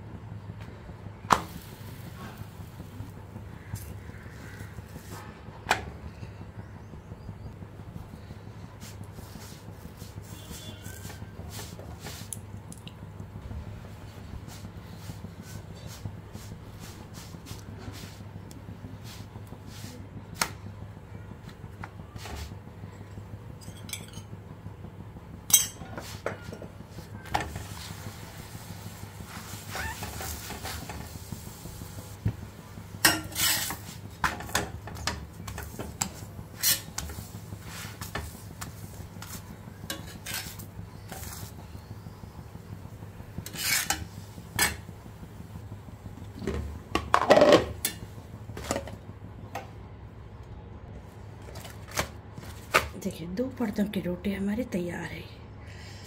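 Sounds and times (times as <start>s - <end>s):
steady low hum: 0.0s - 56.0s
steel spatula scraping iron pan: 33.0s - 34.6s, 36.0s - 37.1s, 39.2s - 41.3s, 43.4s - 44.8s.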